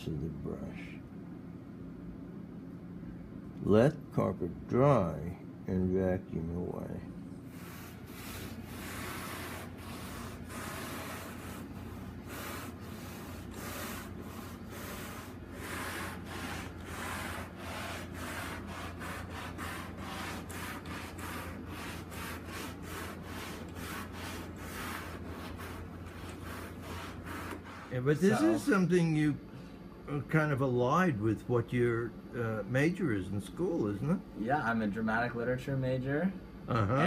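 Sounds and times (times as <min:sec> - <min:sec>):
brush scrubbing carpet: 0:07.5 - 0:28.8.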